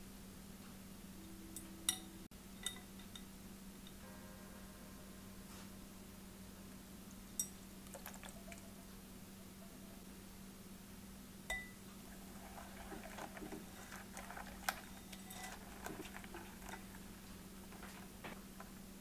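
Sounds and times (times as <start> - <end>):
low steady hum: 0.0 - 19.0
whisk tapping glass bowl: 11.5 - 11.8.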